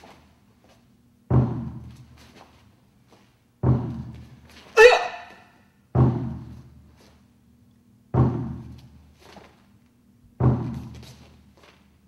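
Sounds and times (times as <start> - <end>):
large drum booming: 6.0 - 6.5, 8.1 - 8.7.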